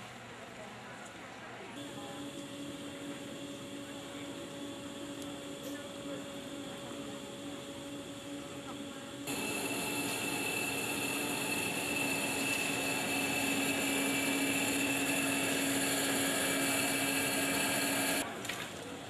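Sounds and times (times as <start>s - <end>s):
high machine whine: 1.8s - 18.2s
motor humming: 1.8s - 18.2s
furnace rushing: 9.3s - 18.2s.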